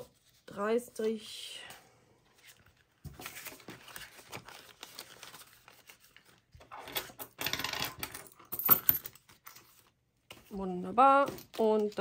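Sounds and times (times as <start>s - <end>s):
banknotes and plastic pouch rustling: 2.3s - 12.0s.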